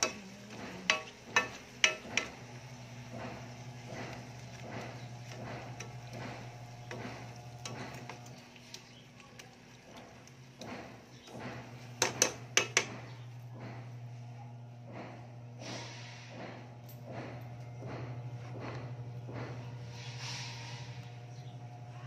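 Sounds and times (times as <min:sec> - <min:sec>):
spatula scraping frying pan: 0:00.0 - 0:08.2, 0:19.8 - 0:21.1
steady low hum: 0:00.0 - 0:22.0.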